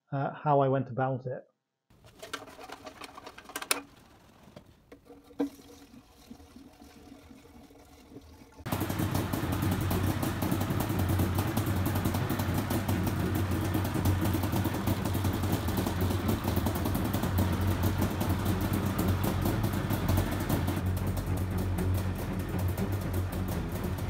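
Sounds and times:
engine running steadily: 0:08.7 - 0:24.0.

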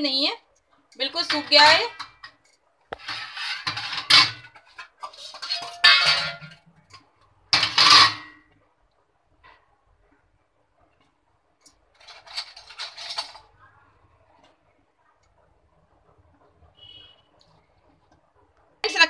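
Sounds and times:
steel kitchenware clattering: 0:00.9 - 0:08.6, 0:11.6 - 0:13.7.

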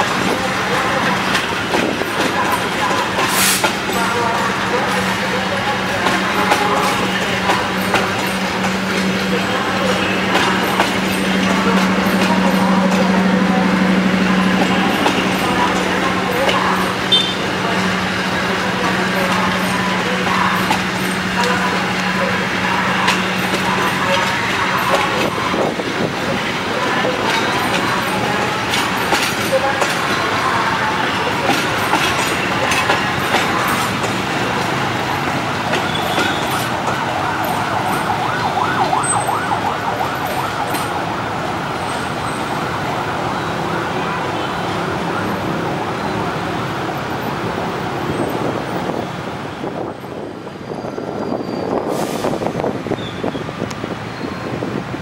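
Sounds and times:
wheel flanges squealing: 0:00.1 - 0:39.5, 0:50.5 - 0:52.0
train wheels clattering over rail joints: 0:19.0 - 0:37.1.

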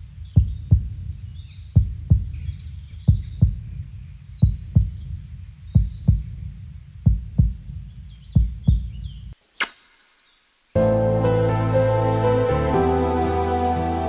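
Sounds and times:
heartbeat thumps: 0:00.2 - 0:03.8, 0:04.4 - 0:09.2.

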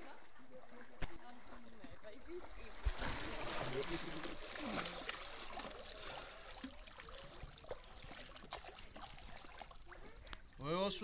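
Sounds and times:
pool water trickling and lapping: 0:00.0 - 0:11.0
small water drips: 0:00.6 - 0:11.0.

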